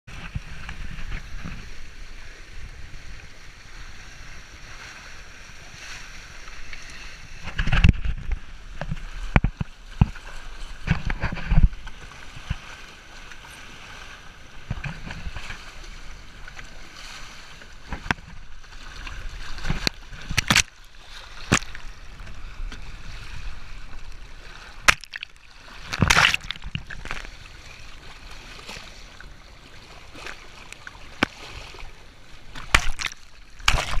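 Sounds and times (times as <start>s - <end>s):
water rushing past hulls: 0.1s - 34.0s
sharp splashes and knocks: 7.4s - 13.5s, 17.8s - 22.9s, 23.9s - 27.5s, 29.8s - 34.0s.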